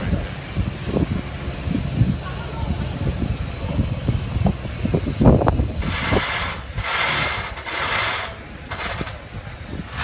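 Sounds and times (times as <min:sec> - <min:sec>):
steam locomotive clanking: 0:05.8 - 0:10.0.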